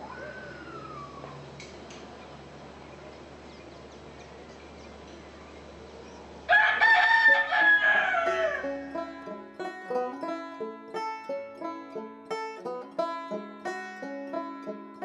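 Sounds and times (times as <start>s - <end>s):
rooster crowing: 0.0s - 1.5s, 6.5s - 10.3s
plucked banjo notes: 7.3s - 15.0s.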